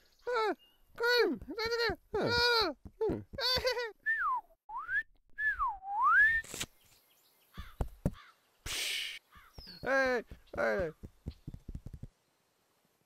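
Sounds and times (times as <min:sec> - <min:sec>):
person whistling: 0:04.0 - 0:06.5
short hiss: 0:06.4 - 0:07.0, 0:08.6 - 0:09.2.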